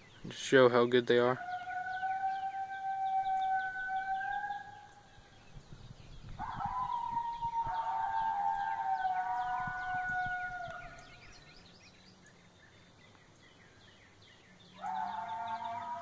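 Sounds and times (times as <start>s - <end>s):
recorded coyote howls: 1.2s - 5.3s, 6.3s - 11.4s, 14.8s - 16.0s.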